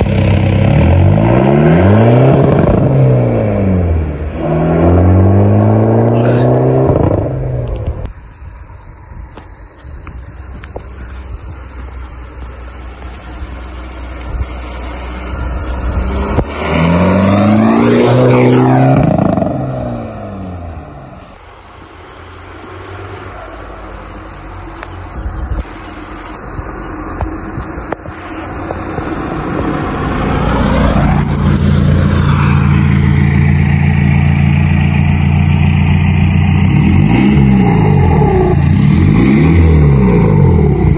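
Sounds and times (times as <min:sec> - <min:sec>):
diesel car engine: 0:00.0 - 0:40.9
crickets chirping: 0:00.1 - 0:40.9.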